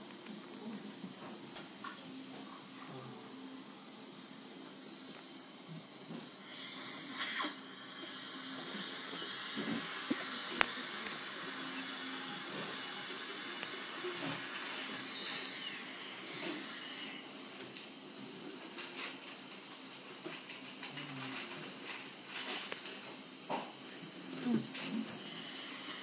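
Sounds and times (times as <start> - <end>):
dental drill whining: 3.6 - 18.6, 23.5 - 26.0.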